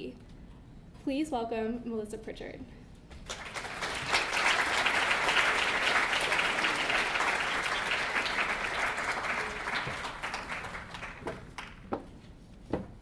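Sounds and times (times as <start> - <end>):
audience applauding: 3.2 - 11.9.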